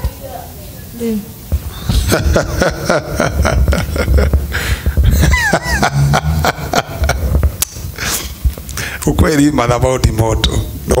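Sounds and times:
microphone handling thumps and clicks: 0:01.5 - 0:02.5, 0:03.2 - 0:08.8.

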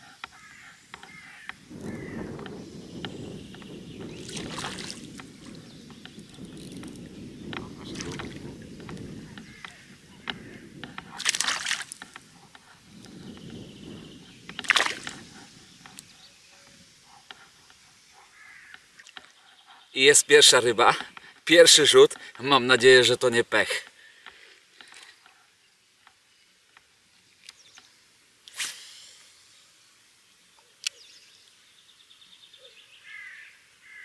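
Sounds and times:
water sloshing and splashing: 0:04.1 - 0:05.6, 0:07.6 - 0:08.7, 0:10.5 - 0:12.2, 0:14.5 - 0:15.3.

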